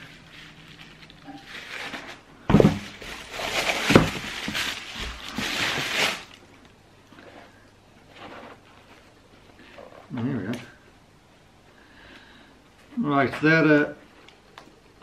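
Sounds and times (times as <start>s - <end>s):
tissue paper rustling: 0.0s - 6.4s.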